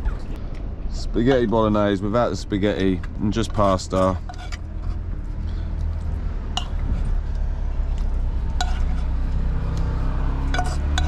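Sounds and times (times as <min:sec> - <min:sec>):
utensil clinking on pot: 0:06.6 - 0:06.8, 0:08.6 - 0:09.1, 0:10.4 - 0:11.0.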